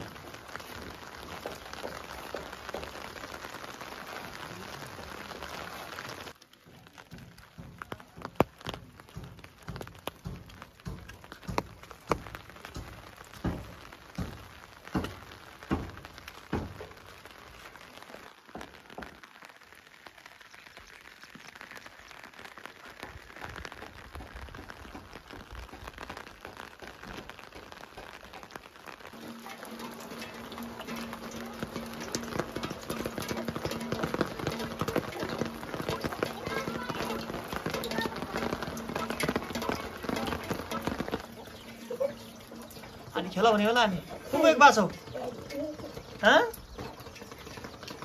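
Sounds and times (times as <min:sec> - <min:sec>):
rain falling: 0:00.0 - 0:48.0
sharp knocks: 0:07.1 - 0:17.0.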